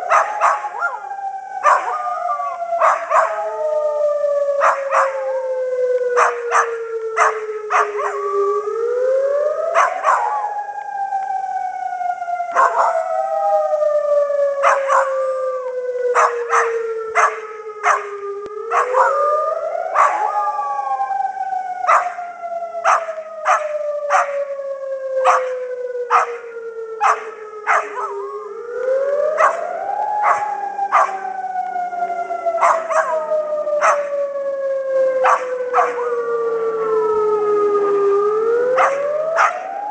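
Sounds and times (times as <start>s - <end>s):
dog howling: 0.0s - 5.5s, 6.2s - 8.6s, 9.6s - 10.6s, 12.5s - 13.8s, 14.5s - 21.2s, 21.8s - 24.6s, 25.2s - 28.5s, 29.2s - 34.4s, 35.0s - 37.5s, 38.6s - 39.9s
siren wailing: 0.0s - 39.9s.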